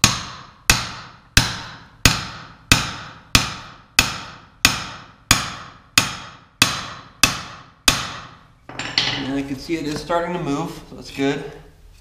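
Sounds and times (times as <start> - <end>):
hammer striking metal punch: 0.0 - 9.4.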